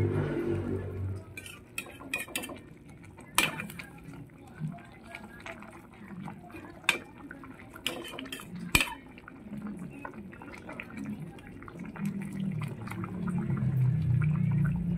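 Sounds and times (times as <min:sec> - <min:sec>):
liquid sloshing: 0:01.2 - 0:14.9
metal ladle clinking on pot: 0:01.3 - 0:02.7, 0:03.3 - 0:03.9, 0:07.8 - 0:09.2.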